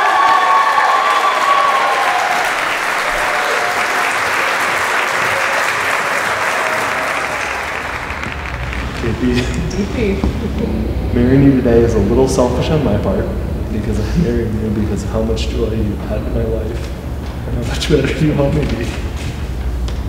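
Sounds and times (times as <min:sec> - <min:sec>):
crowd clapping and cheering: 0:00.0 - 0:10.6.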